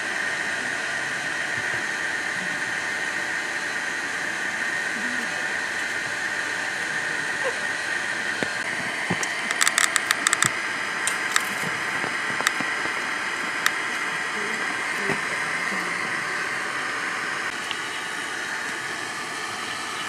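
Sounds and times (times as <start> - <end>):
high-pitched hissing drone: 0.0 - 20.0
sharp clicks: 9.2 - 11.5.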